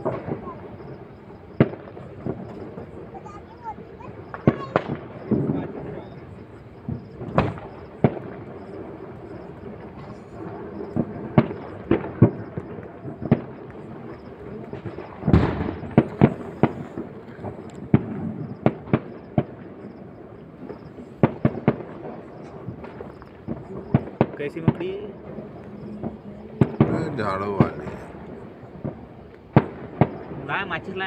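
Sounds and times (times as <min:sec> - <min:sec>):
firecrackers bursting: 0:00.0 - 0:31.0.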